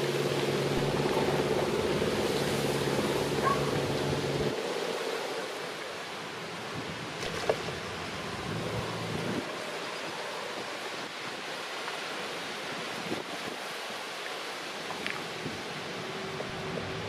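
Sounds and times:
wind noise on microphone: 0:06.0 - 0:11.8, 0:12.4 - 0:14.0, 0:14.9 - 0:17.0.

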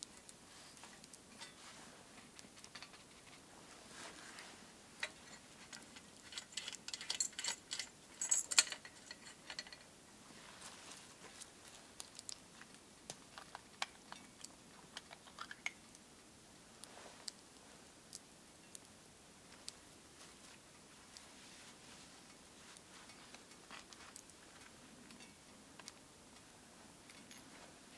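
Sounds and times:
metal lantern clicks and rattles: 0:02.4 - 0:03.4, 0:05.0 - 0:09.9, 0:15.0 - 0:15.8.

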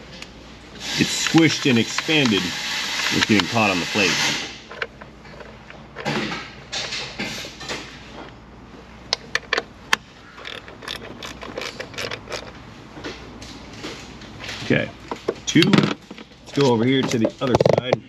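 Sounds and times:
tool scraping and rustling: 0:00.9 - 0:08.4, 0:09.1 - 0:18.0
sharp metal clicks: 0:09.1 - 0:12.6.

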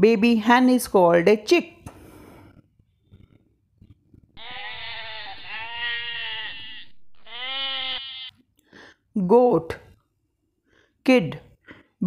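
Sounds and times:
goat bleating: 0:04.4 - 0:08.4.

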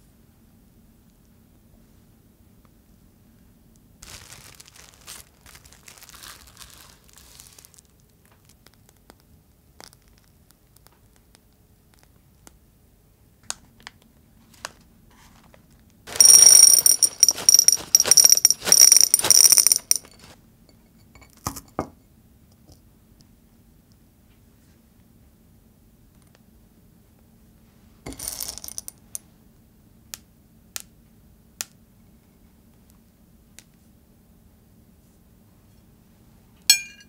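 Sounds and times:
cereal pearls rattling into dish: 0:04.0 - 0:08.0, 0:16.1 - 0:20.4, 0:28.1 - 0:29.0
dish ringing: 0:36.7 - 0:37.0.

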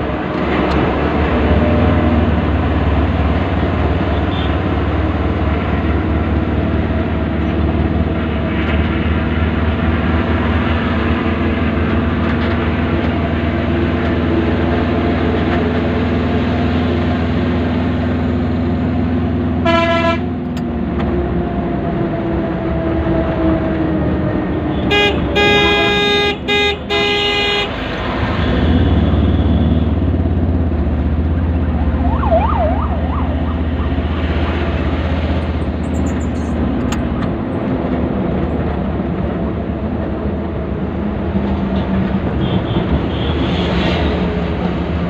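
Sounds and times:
traffic rumble: 0:00.0 - 0:45.0
vehicle horn honking: 0:04.2 - 0:04.6, 0:19.6 - 0:20.3, 0:24.8 - 0:27.7.

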